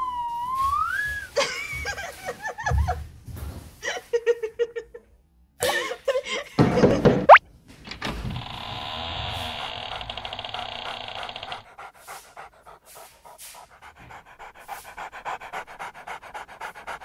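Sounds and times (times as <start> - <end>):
wavering whistle-like tone: 0.0 - 1.3
giggling laughter: 1.4 - 3.0, 3.8 - 7.2.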